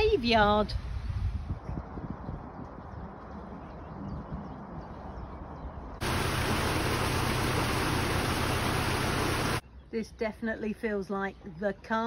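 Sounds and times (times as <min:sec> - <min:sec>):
water rushing through lock gates: 0:06.0 - 0:09.6.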